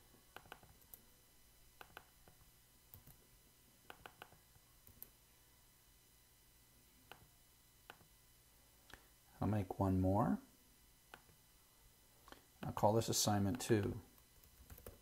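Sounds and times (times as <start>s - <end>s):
mouse and keyboard clicks: 0.4s - 1.0s, 1.8s - 2.4s, 3.9s - 5.1s.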